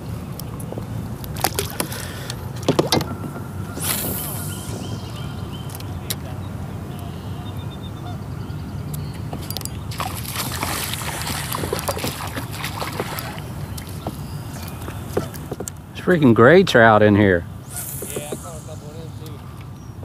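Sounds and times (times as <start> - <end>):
low motor-like hum: 0.0 - 15.4
fish splashing at water surface: 9.9 - 15.4.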